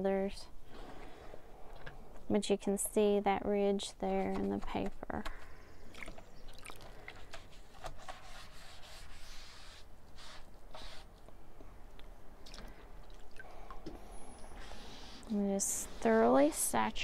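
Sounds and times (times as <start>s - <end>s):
water dripping: 6.0s - 7.0s.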